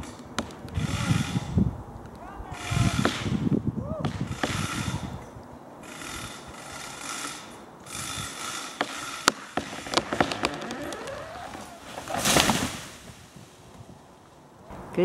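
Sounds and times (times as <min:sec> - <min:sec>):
rasping saw bursts: 0:00.8 - 0:01.6, 0:02.5 - 0:03.4, 0:04.1 - 0:05.2, 0:05.8 - 0:12.7
tree wood cracking: 0:08.8 - 0:14.4.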